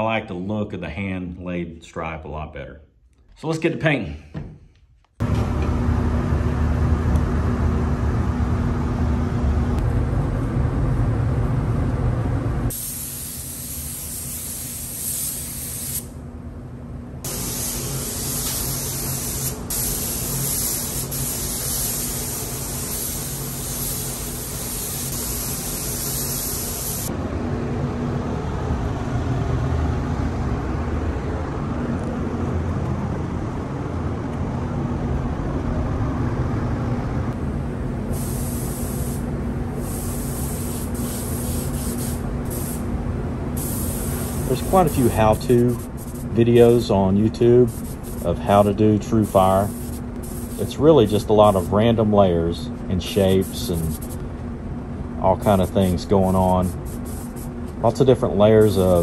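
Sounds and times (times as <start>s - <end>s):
steady low rumble: 5.2s - 12.8s, 19.4s - 59.0s
paint spray gun hissing: 12.7s - 16.1s, 17.3s - 27.1s, 38.1s - 42.8s, 43.6s - 46.8s, 47.7s - 48.3s, 49.2s - 50.8s, 53.4s - 54.2s, 55.5s - 57.6s.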